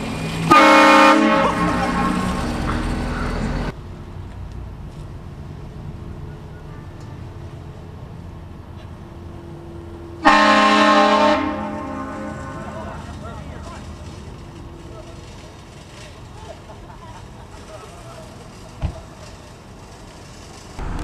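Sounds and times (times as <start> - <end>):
low street noise: 0.0 - 21.0
train horn blasting: 0.5 - 2.6, 10.2 - 13.1.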